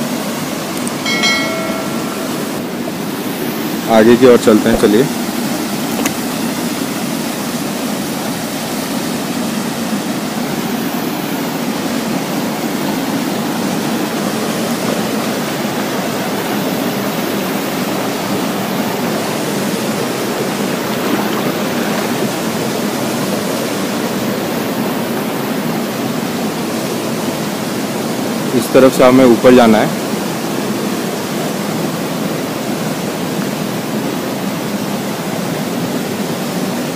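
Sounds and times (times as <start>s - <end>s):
small waterfall: 0.0s - 2.0s, 2.7s - 36.9s
stream rushing over rocks: 0.0s - 28.6s.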